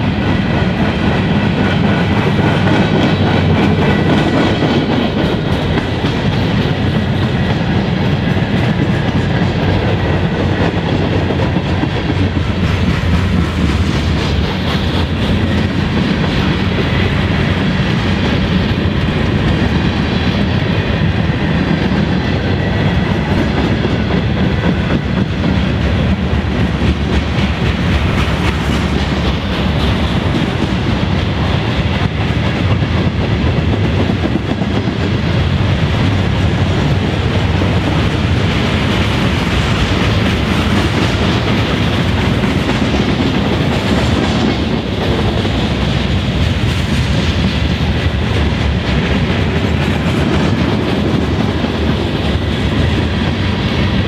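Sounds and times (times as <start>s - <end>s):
freight train wheels rumbling on rails: 0.0s - 54.0s.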